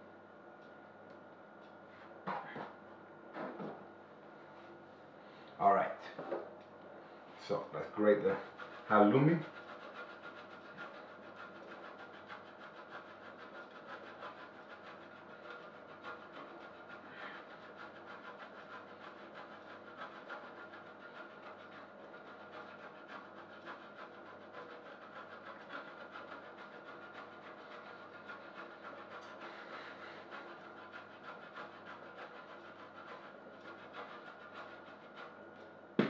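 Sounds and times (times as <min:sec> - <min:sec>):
cheese grating on metal grater: 0:07.8 - 0:35.7.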